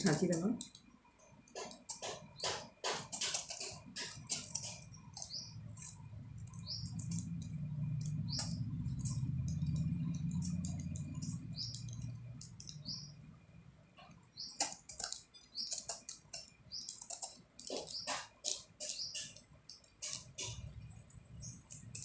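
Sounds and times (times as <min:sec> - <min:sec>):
low hum: 0:05.0 - 0:14.3.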